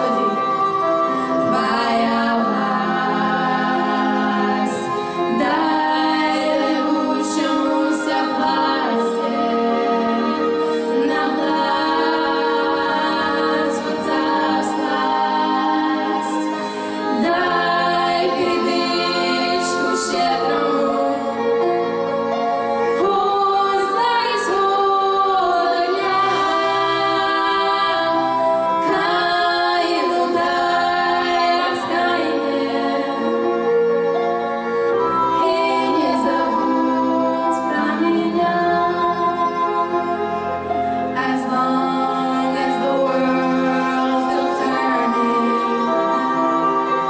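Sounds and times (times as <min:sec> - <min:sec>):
musical accompaniment: 0:00.0 - 0:47.0.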